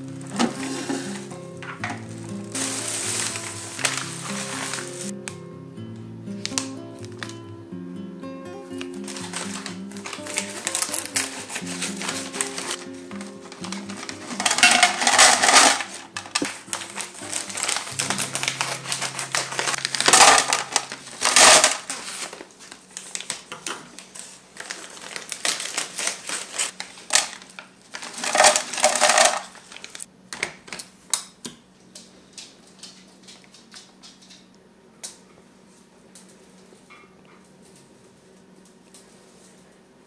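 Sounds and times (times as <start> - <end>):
faint background music: 0.0 - 22.4
dried fruit clattering into plastic: 0.1 - 5.1, 8.8 - 30.8
plastic bag crinkling: 0.1 - 5.1, 8.7 - 30.8.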